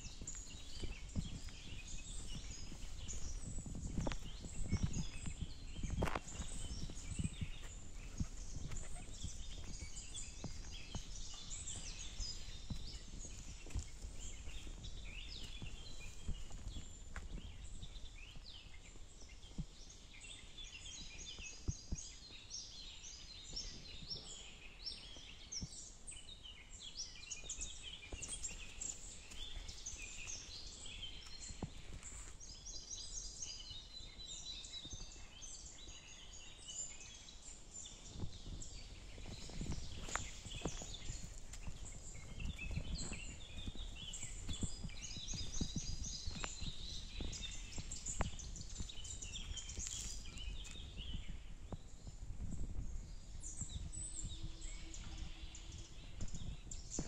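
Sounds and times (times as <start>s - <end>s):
footsteps on path: 0.0s - 18.5s, 28.0s - 33.0s, 38.1s - 51.8s
songbirds chirping: 0.0s - 57.0s.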